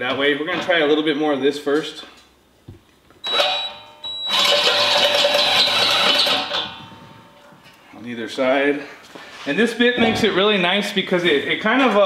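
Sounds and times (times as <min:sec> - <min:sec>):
cordless drill cutting metal: 0:04.3 - 0:06.6.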